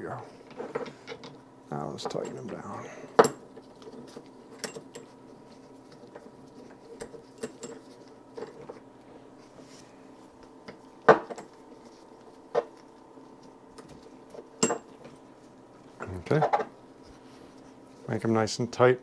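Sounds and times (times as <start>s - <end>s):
metal tools clinking: 14.6s - 14.9s
sharp metal clanks: 14.6s - 14.9s.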